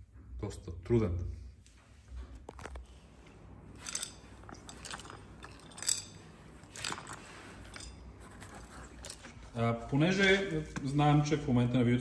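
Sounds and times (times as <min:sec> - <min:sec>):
metal part clicks and clinks: 0:03.8 - 0:08.1.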